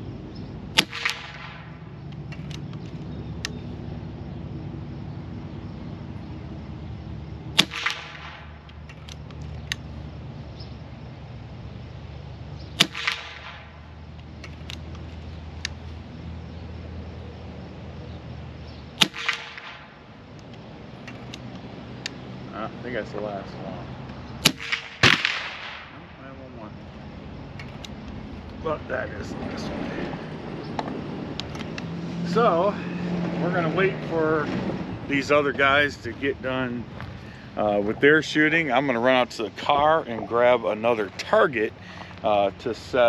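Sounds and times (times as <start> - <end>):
air rifle shots: 0.7 - 2.9, 7.5 - 9.9, 12.7 - 15.0, 19.0 - 20.4, 24.4 - 26.2.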